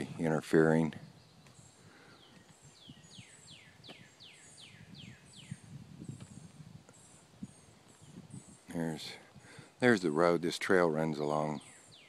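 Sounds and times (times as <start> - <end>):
soft footsteps on pavement: 1.3 - 5.1, 5.7 - 9.3.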